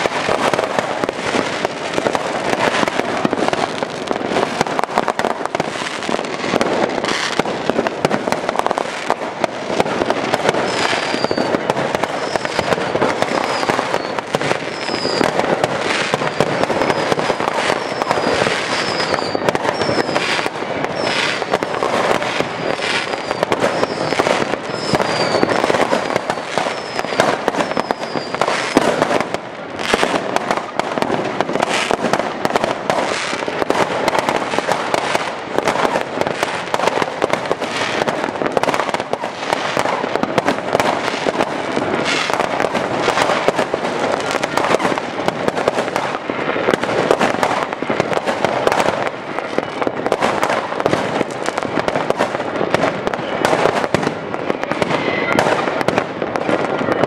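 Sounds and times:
high falling firework whistles: 0:00.0 - 0:30.8
fireworks bangs and crackles: 0:00.0 - 0:57.0.

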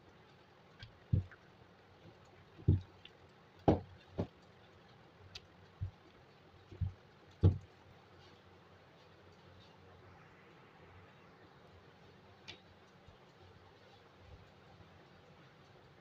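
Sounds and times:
rolling pin thudding on surface: 0:03.7 - 0:04.3, 0:06.8 - 0:07.6.

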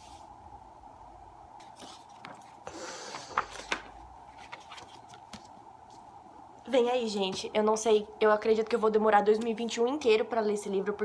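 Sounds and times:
faint steady hum: 0:00.0 - 0:11.0
book cover and pages rustling: 0:01.6 - 0:06.1.

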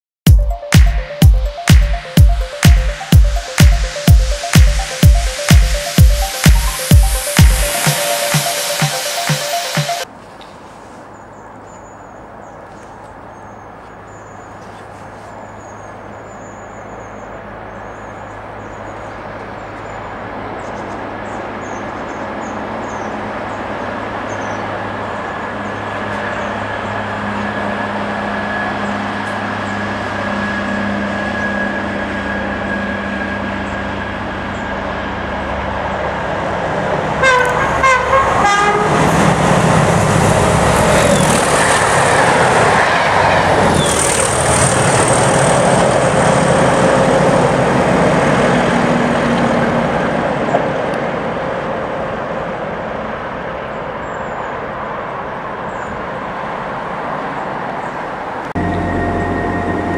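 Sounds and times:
train passing with loud rush: 0:00.3 - 0:59.9
diesel locomotive engine under load: 0:19.2 - 0:59.9
locomotive horns: 0:25.5 - 0:35.8, 0:37.0 - 0:47.5, 0:58.6 - 0:59.9.

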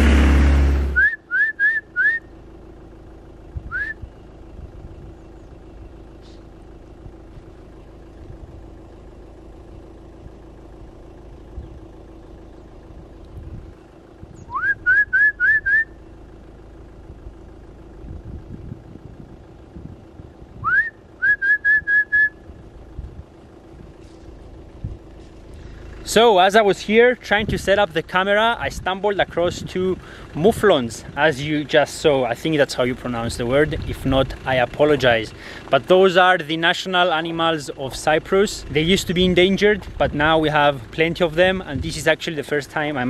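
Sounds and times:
steady low hum: 0:00.0 - 0:34.5
short rising whistles: 0:00.6 - 0:02.3, 0:03.6 - 0:04.1, 0:14.4 - 0:16.0, 0:20.6 - 0:22.5.

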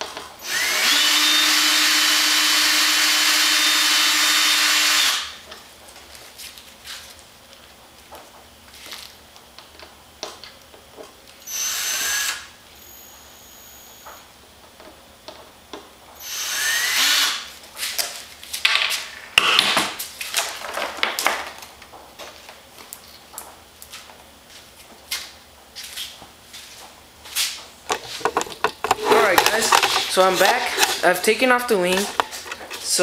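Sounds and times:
cordless drill whining: 0:00.4 - 0:05.4, 0:11.4 - 0:14.2, 0:16.2 - 0:17.5
knocks and rattles: 0:27.9 - 0:31.1.

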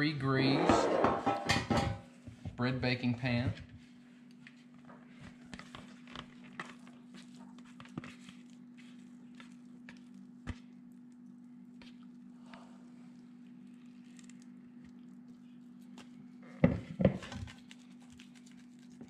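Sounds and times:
steady low hum: 0:00.0 - 0:19.0
utensil scraping a bowl: 0:00.5 - 0:01.5.

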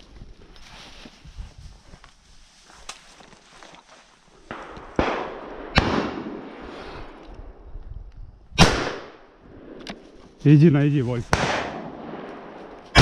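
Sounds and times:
shotgun shots echoing: 0:04.5 - 0:06.7, 0:08.6 - 0:10.0, 0:11.2 - 0:13.0.

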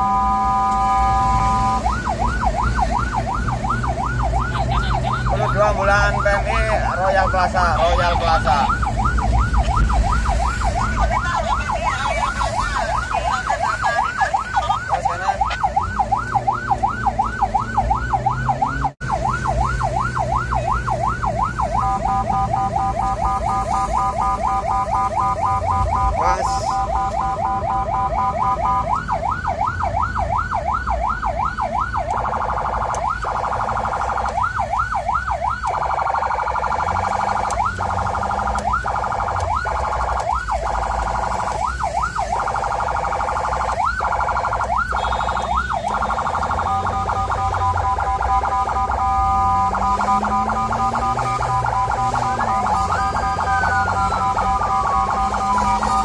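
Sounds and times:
ambulance siren: 0:00.0 - 0:56.0
engine and road rumble: 0:00.0 - 0:56.0.

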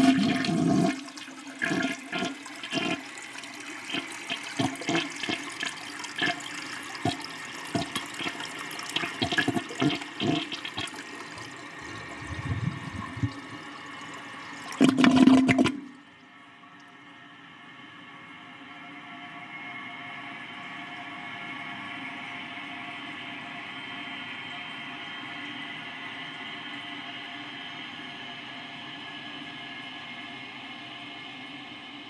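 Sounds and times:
gurgling water spurts: 0:00.0 - 0:16.0
toilet flushing: 0:00.0 - 0:16.1.

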